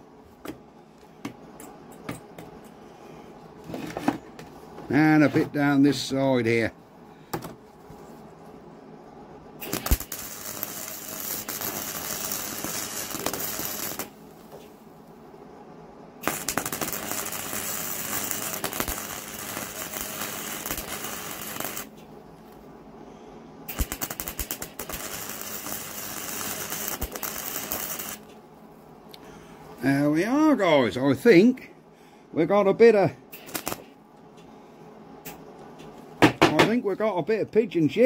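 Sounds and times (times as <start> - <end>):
welding arc crackling: 9.6 - 14.6, 16.2 - 22.0, 23.7 - 28.3, 33.4 - 33.9.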